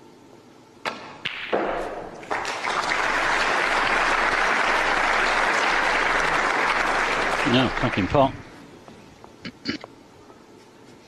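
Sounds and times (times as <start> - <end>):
cue striking ball: 0.9 - 2.4
audience applause: 2.1 - 8.4.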